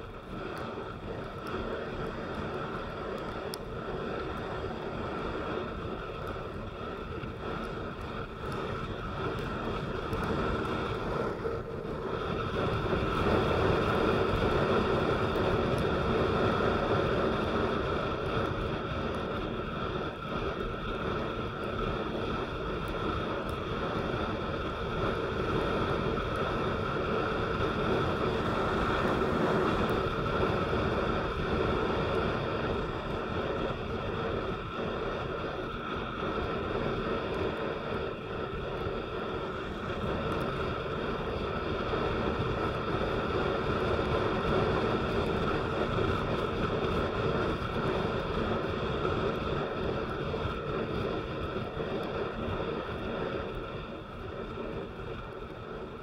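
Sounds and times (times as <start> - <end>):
rain: 0.0 - 11.6, 38.7 - 56.0
vehicle engine noise: 0.0 - 56.0.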